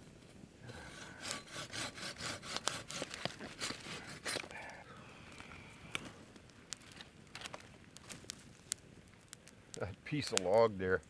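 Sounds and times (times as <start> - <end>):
hand saw cutting wood: 0.7 - 4.4.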